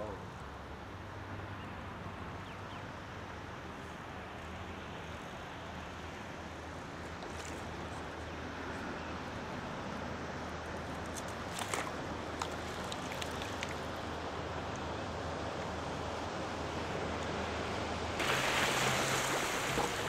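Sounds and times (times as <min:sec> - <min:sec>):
wind and water noise: 0:00.0 - 0:20.0
fish splashing: 0:11.1 - 0:14.1.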